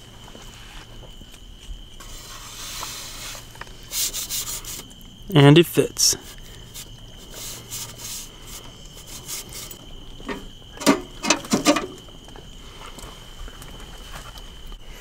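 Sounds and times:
high insect drone: 0.0s - 15.0s
metal clinks and scrapes: 9.1s - 12.0s.

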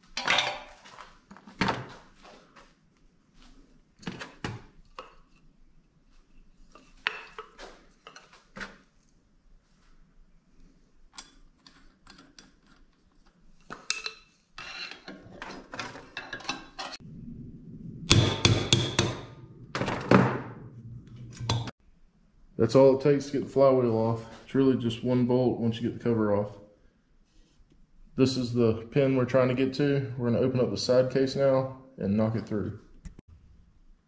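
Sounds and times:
hammer striking metal: 18.1s - 20.5s.

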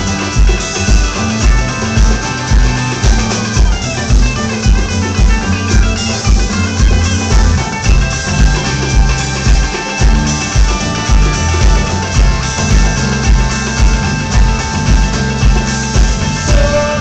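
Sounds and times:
kick drum beat: 0.0s - 17.0s
rock band playing live: 0.0s - 17.0s.

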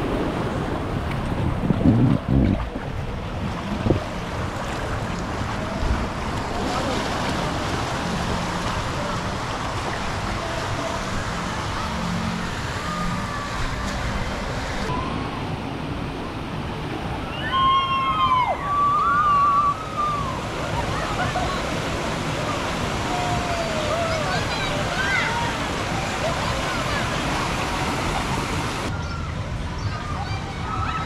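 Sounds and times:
wind noise on microphone: 0.0s - 6.4s
rushing water: 0.0s - 31.0s.

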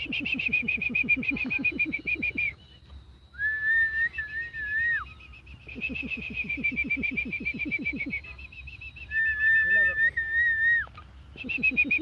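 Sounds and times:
rapid pulsing call: 0.0s - 12.0s
person whistling held note: 3.3s - 5.1s.

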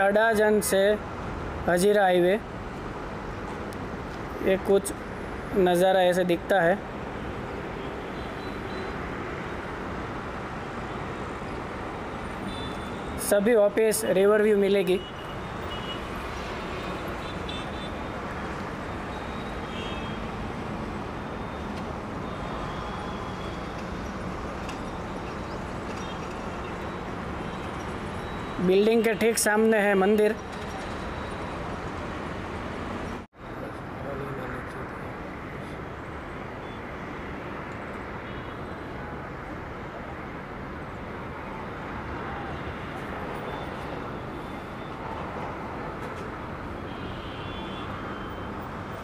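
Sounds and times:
distant road traffic hum: 0.0s - 49.0s
faint high beeps: 26.0s - 28.7s.

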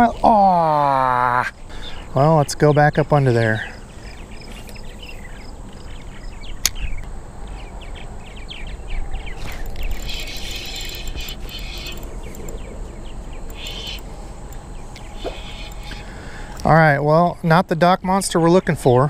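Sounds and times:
small birds chirping: 0.0s - 19.0s
sharp click: 9.4s - 12.7s
fishing reel gears whirring: 9.4s - 12.8s, 13.5s - 16.2s.

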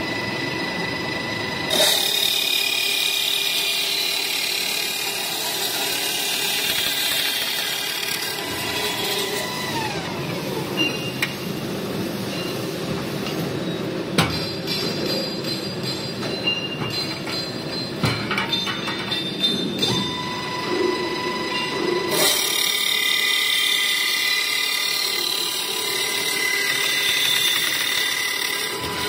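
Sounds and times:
saw grinding metal: 0.0s - 11.2s, 19.1s - 29.0s
circular saw whining: 0.0s - 12.8s, 19.1s - 29.0s
metallic clanks: 13.2s - 20.2s.

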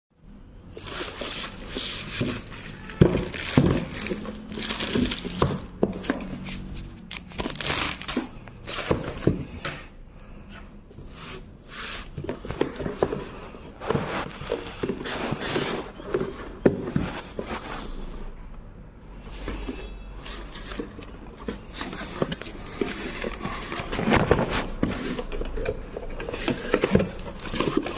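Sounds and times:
plastic bag crinkling: 0.8s - 5.7s, 7.1s - 9.0s.

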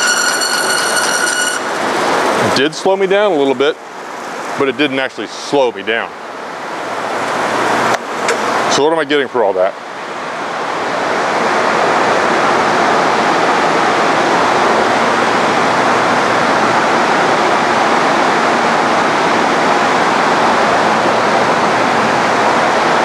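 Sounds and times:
bandsaw running: 0.0s - 2.6s.

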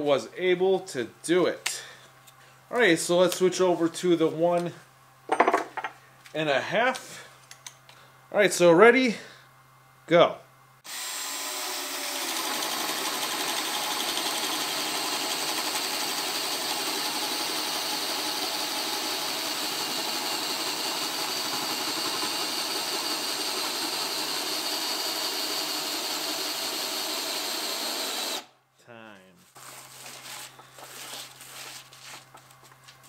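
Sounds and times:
hammer drill boring into wood: 10.8s - 28.5s.

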